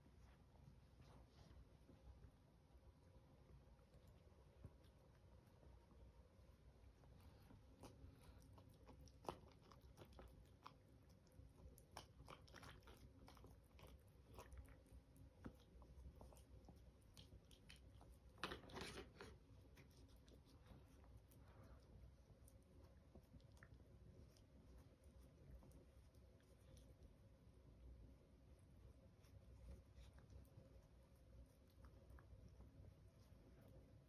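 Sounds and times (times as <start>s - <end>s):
puppy crunching dry kibble: 7.2s - 24.4s.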